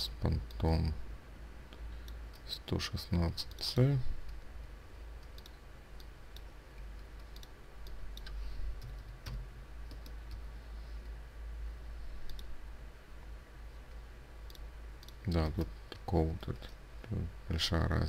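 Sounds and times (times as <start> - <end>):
low steady hum: 0.0 - 18.0
keyboard and mouse clicks: 5.2 - 10.5, 12.2 - 12.5, 13.9 - 16.8.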